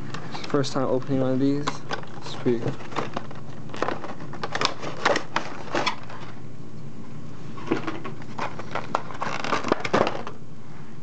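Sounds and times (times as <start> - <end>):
cardboard box rustling: 7.6 - 10.3.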